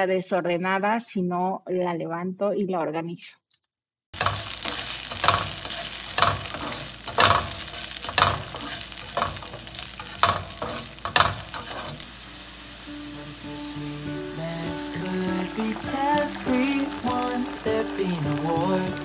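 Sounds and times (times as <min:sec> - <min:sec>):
cookware clattering: 0:04.2 - 0:12.0
steady kitchen hiss: 0:04.2 - 0:19.0.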